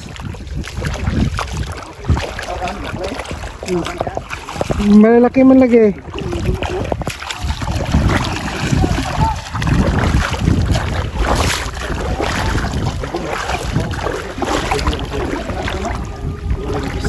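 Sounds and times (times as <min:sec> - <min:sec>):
seawater sloshing around legs: 0:00.0 - 0:17.0
wind buffeting microphone: 0:00.0 - 0:17.0.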